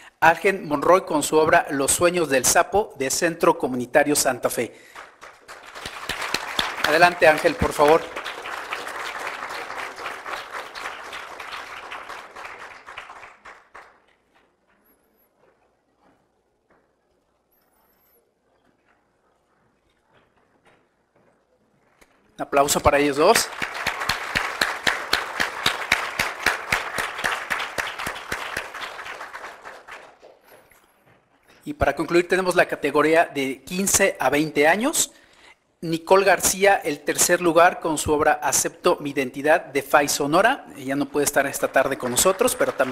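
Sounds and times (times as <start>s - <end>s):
audience applauding: 4.8s - 14.6s, 22.6s - 30.8s, 40.9s - 42.9s.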